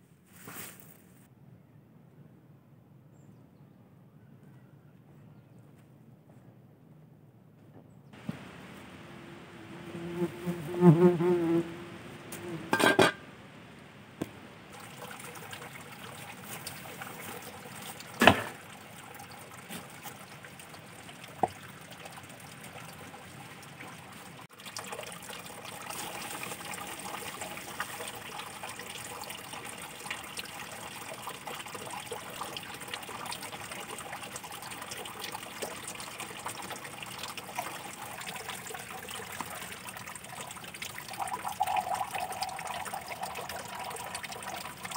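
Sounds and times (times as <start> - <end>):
water running and trickling: 8.2 - 10.8, 14.5 - 44.9.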